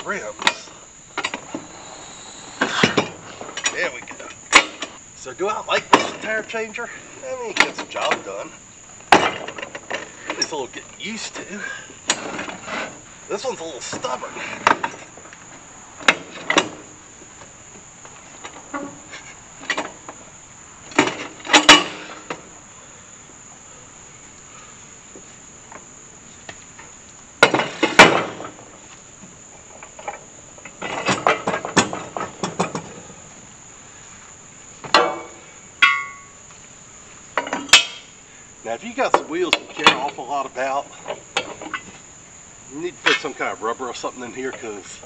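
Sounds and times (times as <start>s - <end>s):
crickets chirping: 0.0s - 45.0s
metal clanks of tire changer: 20.9s - 22.5s, 34.8s - 36.4s, 37.4s - 38.1s.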